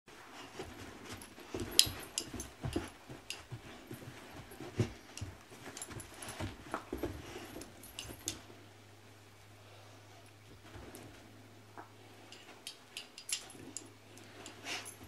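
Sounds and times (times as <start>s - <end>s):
scuffling knocks and thumps: 0.1s - 8.6s
dogs play noises: 0.1s - 8.7s, 10.0s - 15.0s.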